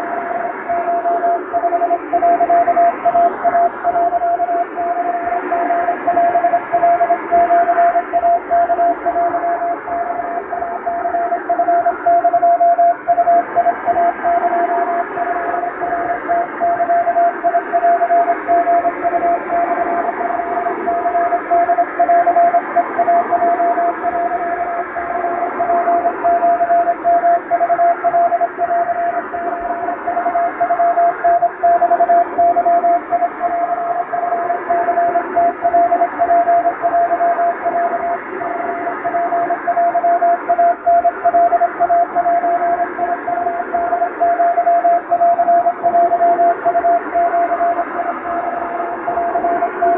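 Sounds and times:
morse code beeps: 0:00.0 - 0:49.9.

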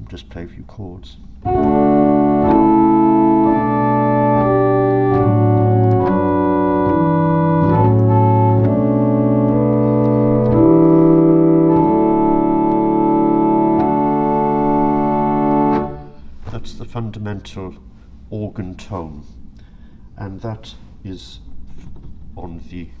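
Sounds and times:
pipe organ playing slow chords: 0:01.4 - 0:16.4.

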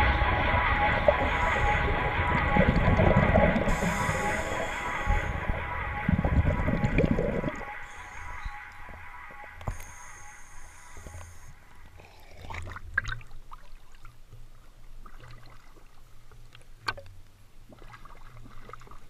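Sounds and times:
low muffled rumble: 0:00.0 - 0:13.0
small waves lapping: 0:00.0 - 0:19.0.

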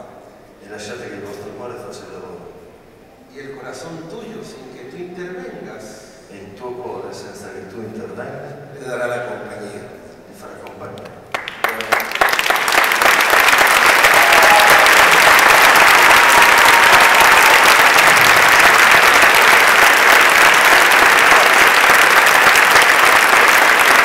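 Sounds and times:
large audience applauding: 0:11.3 - 0:24.0.

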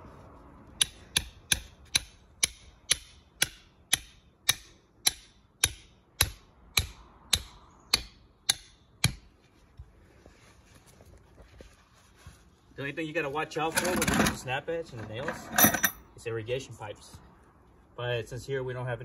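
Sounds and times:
hammer striking steel spike: 0:00.8 - 0:09.2.

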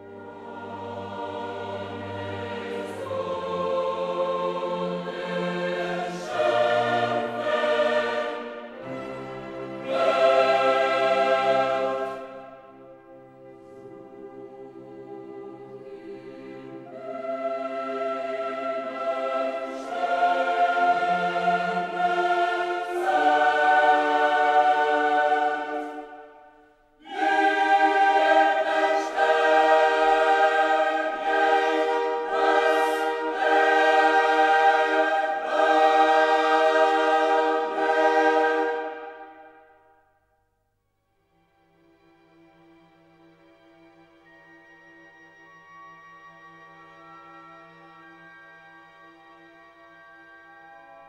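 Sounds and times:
choir singing held chords: 0:00.0 - 0:40.2.

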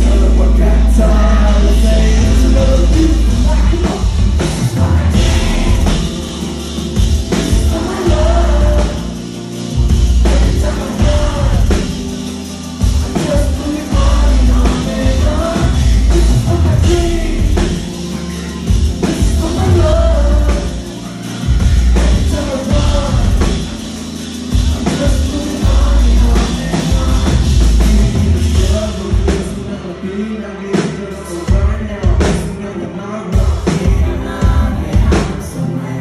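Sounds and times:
man singing into a microphone: 0:00.0 - 0:06.4, 0:07.2 - 0:24.0, 0:24.6 - 0:36.0
loud amplified music with heavy bass: 0:00.0 - 0:36.0.

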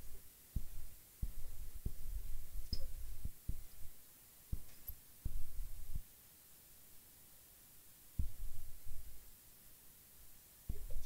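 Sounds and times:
small sharp tick: 0:02.6 - 0:03.0.

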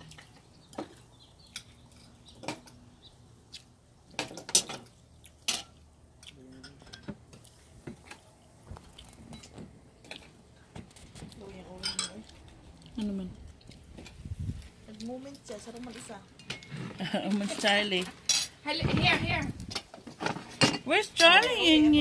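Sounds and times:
cutlery clinking on plates: 0:06.5 - 0:07.2, 0:11.8 - 0:12.2, 0:18.3 - 0:18.6.

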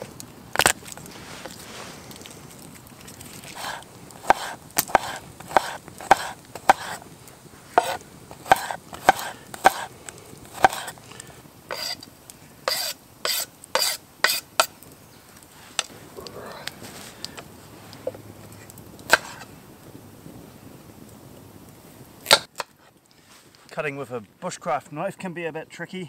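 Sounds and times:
knife scraping board: 0:03.4 - 0:07.0, 0:07.8 - 0:09.9, 0:10.6 - 0:11.0, 0:11.7 - 0:12.0, 0:12.7 - 0:14.5.

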